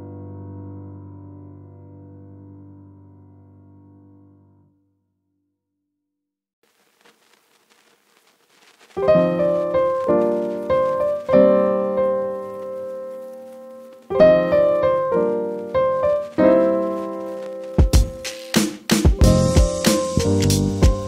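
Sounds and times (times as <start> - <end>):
piano music: 9.0 - 21.0.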